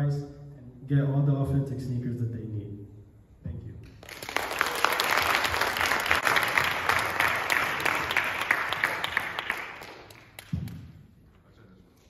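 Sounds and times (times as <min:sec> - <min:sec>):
audience applauding: 0:04.0 - 0:10.6.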